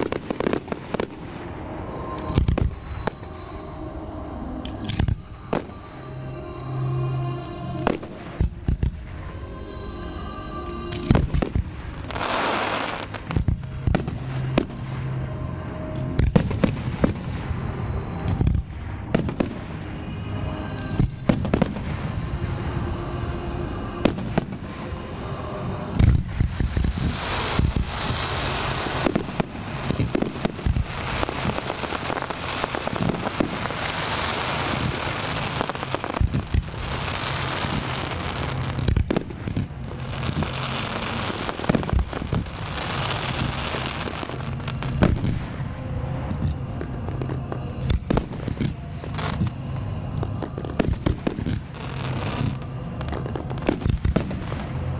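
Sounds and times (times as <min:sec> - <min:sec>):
fireworks crackling hiss: 0:00.0 - 0:54.9.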